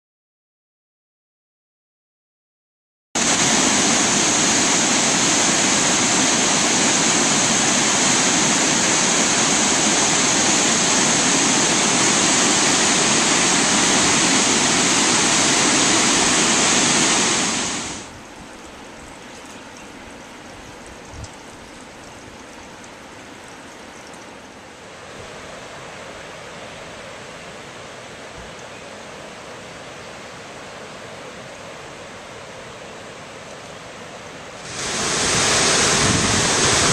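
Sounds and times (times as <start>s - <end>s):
distant rush of falls and river: 3.2s - 18.2s, 23.1s - 36.9s
waterfall roaring close up: 3.2s - 18.2s, 24.6s - 36.9s.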